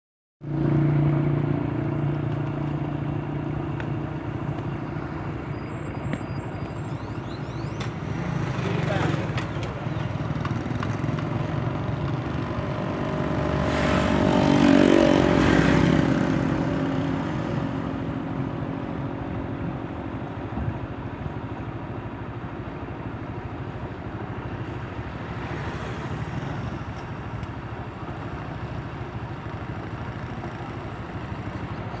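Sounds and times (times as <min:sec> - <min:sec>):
low road noise rumble: 0:00.4 - 0:32.0
motorcycle engine passing: 0:04.7 - 0:18.8.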